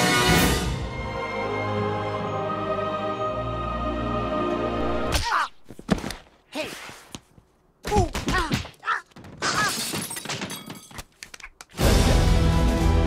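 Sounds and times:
orchestral logo music: 0.0s - 5.1s.

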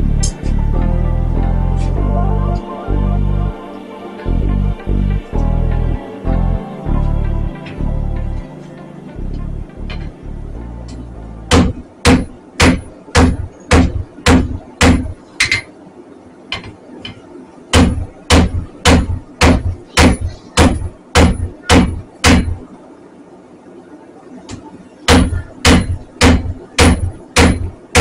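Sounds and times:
hammer blows ringing on anvil: 25.1s - 28.0s.

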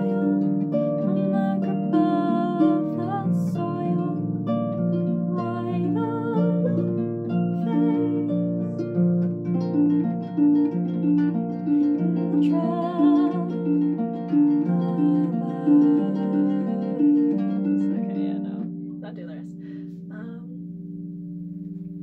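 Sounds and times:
harp played: 0.0s - 22.0s.

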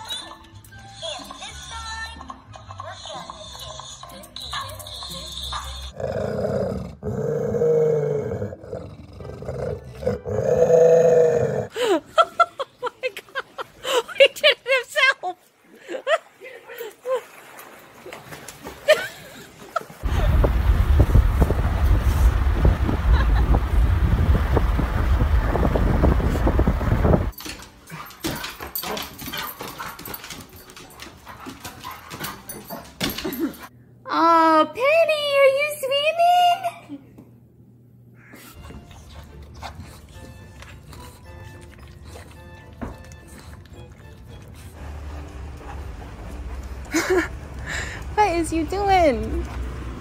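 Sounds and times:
dog growling: 5.9s - 11.7s
wind buffeting car window: 20.0s - 27.3s.

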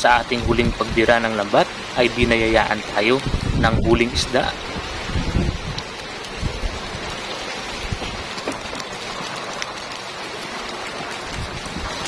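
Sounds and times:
fish splashing in a net: 5.8s - 12.0s.

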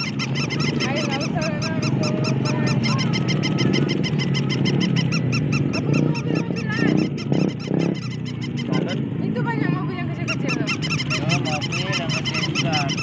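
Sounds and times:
rapid electronic chirping: 0.0s - 9.1s, 10.2s - 13.0s.

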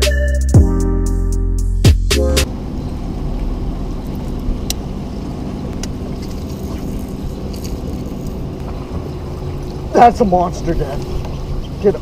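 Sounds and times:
boat motor humming: 0.0s - 12.0s.

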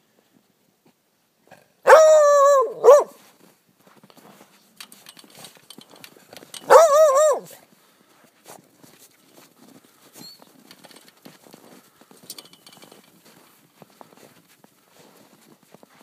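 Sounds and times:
dog baying: 1.9s - 3.2s, 6.6s - 7.6s
faint scuffling in snow: 2.9s - 5.5s, 7.2s - 12.3s, 12.9s - 16.0s.

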